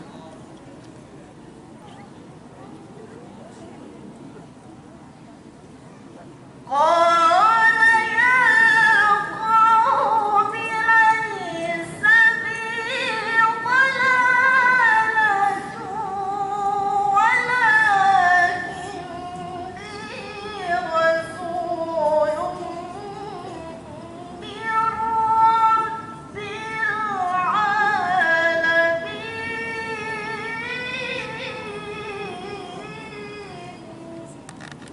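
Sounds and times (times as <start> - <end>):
woman chanting into a microphone: 6.7 - 34.4.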